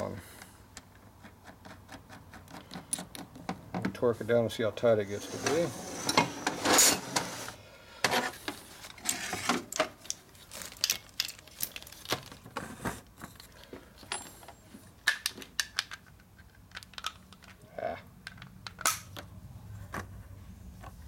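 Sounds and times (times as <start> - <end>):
impact wrench being handled: 8.4 - 12.6
metal tools clinking on workbench: 14.0 - 14.6.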